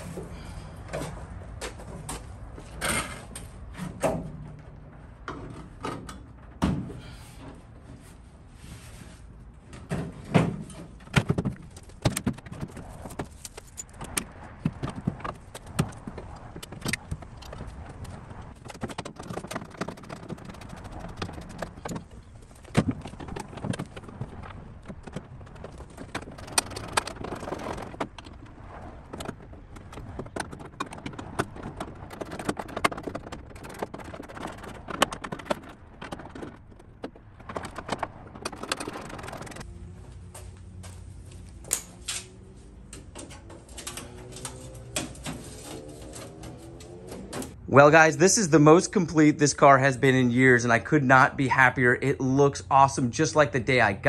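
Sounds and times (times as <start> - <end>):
wire rustling: 10.8 - 47.6.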